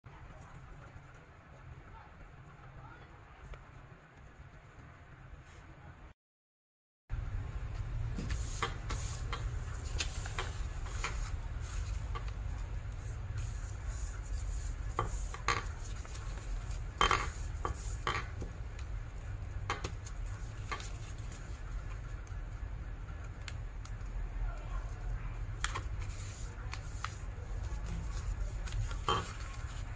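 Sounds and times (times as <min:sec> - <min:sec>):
steady low hum: 0:07.1 - 0:29.9
paper rustling and crackling: 0:08.3 - 0:17.4, 0:24.7 - 0:29.9.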